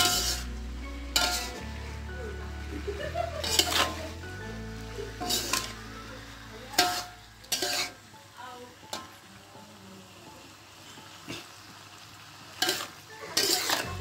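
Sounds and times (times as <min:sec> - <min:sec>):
metal spatula scraping a wok: 0:00.0 - 0:02.1, 0:03.4 - 0:04.2, 0:04.8 - 0:08.1, 0:12.6 - 0:14.0
faint frying sizzle: 0:00.0 - 0:14.0.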